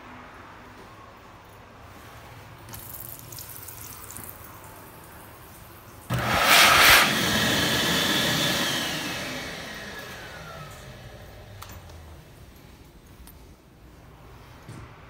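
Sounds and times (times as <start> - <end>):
hand dryer blowing: 6.1 - 12.3.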